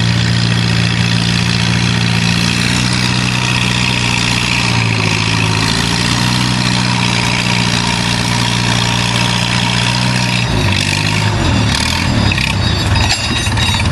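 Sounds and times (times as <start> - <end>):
tractor engine under load: 0.0 - 13.9.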